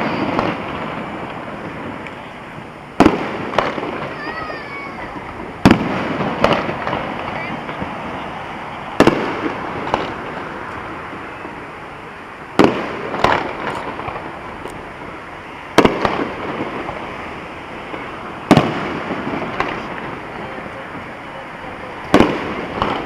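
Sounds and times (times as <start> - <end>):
firework shells banging: 0.0 - 11.7, 12.5 - 17.2, 17.8 - 23.0
steady background noise: 0.0 - 23.0
small firework pops: 3.0 - 7.9, 9.0 - 11.6, 12.6 - 14.8, 15.8 - 17.0, 17.9 - 20.2, 22.0 - 23.0.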